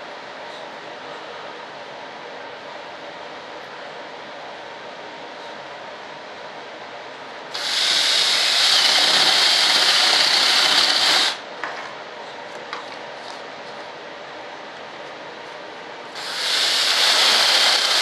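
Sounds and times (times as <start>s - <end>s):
electric drill boring through wood: 7.6s - 11.4s, 16.2s - 18.0s.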